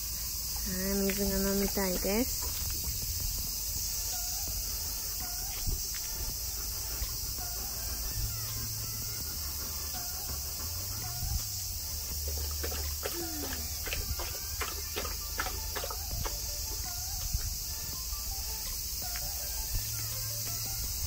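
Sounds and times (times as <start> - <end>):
insects buzzing: 0.0 - 21.0
dog lapping water: 11.8 - 17.2.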